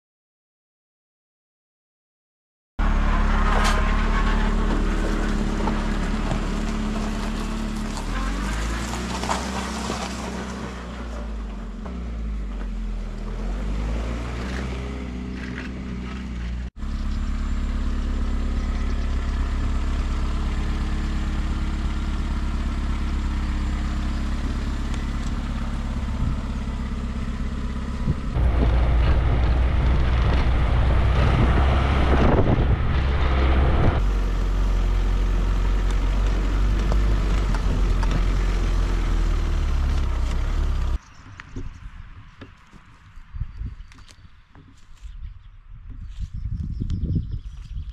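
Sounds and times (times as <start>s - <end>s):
log splitter engine running: 2.8s - 13.8s, 15.2s - 41.0s
utility vehicle engine driving: 2.8s - 47.9s
logs cracking: 35.2s - 41.5s.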